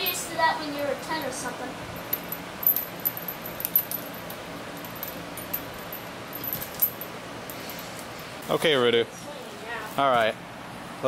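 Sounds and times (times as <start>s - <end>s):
metal chains jingling: 2.0s - 7.9s.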